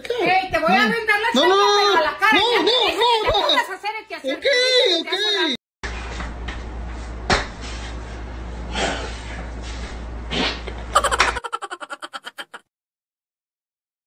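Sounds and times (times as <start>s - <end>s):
room hum: 5.9s - 12.6s.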